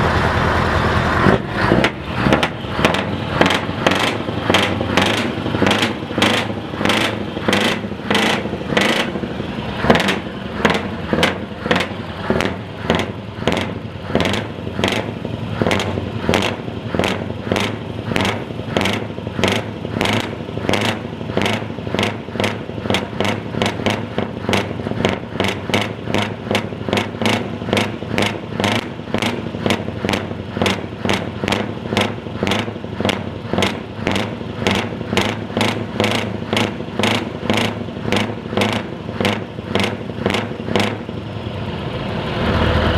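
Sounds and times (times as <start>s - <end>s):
diesel engine running: 0.0s - 42.9s.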